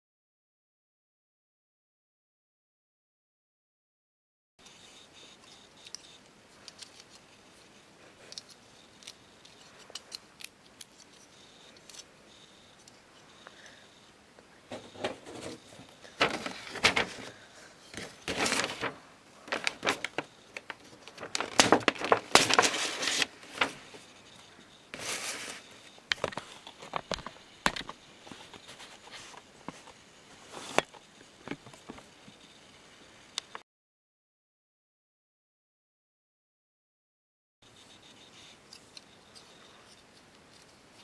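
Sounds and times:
paper bag rustling: 14.7s - 24.1s, 24.9s - 29.8s.

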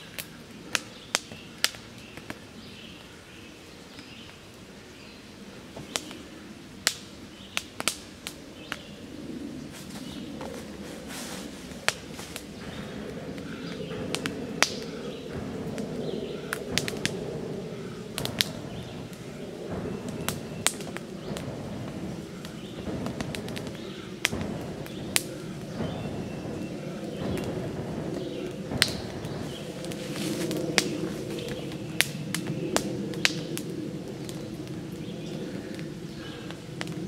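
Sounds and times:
fire crackling and popping: 0.0s - 37.0s
air blown into fire: 9.0s - 37.0s.

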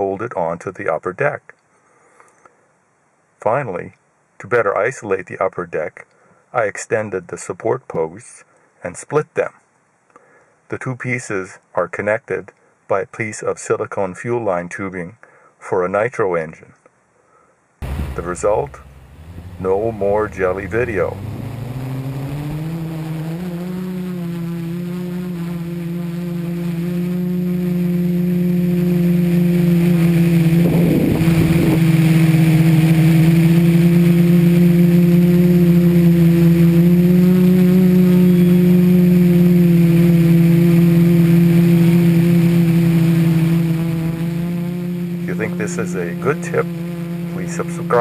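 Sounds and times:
quadcopter motors humming: 17.8s - 48.0s.

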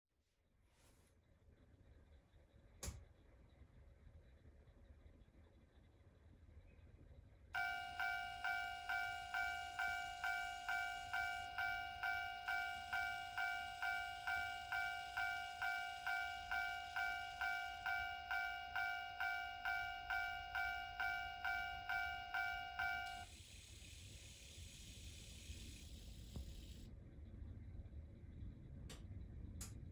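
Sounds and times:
level crossing warning bell: 7.6s - 23.3s.

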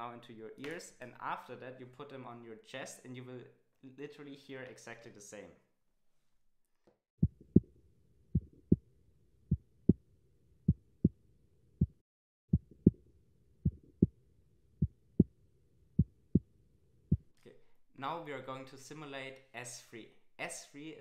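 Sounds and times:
low heartbeat-like thumps: 7.2s - 7.7s, 8.3s - 8.8s, 11.8s - 13.0s, 13.6s - 14.1s, 16.0s - 16.5s, 17.1s - 17.3s.

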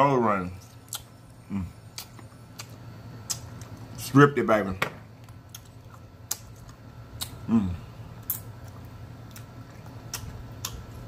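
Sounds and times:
lip smacks and chewing clicks: 0.7s - 1.1s, 1.9s - 3.9s, 5.3s - 7.4s, 8.2s - 11.0s.

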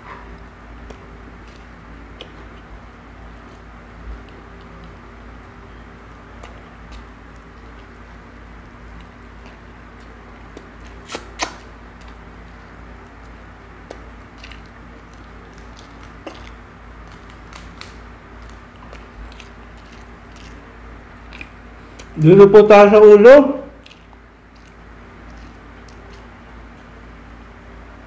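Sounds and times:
faint steady hum: 0.0s - 28.0s
chewing: 0.2s - 2.7s, 6.3s - 8.2s, 8.8s - 11.2s, 13.0s - 22.2s, 23.8s - 26.9s.

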